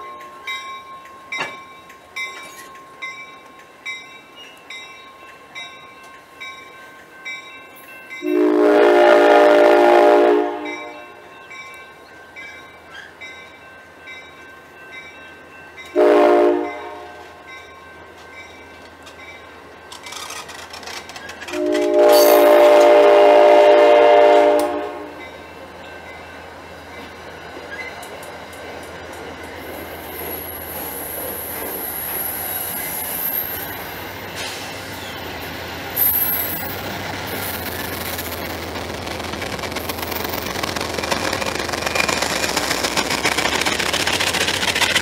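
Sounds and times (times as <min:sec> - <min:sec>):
train horn blasts: 0:08.2 - 0:11.2, 0:16.0 - 0:17.4, 0:21.5 - 0:25.2
train wheels clicking: 0:10.6 - 0:45.0.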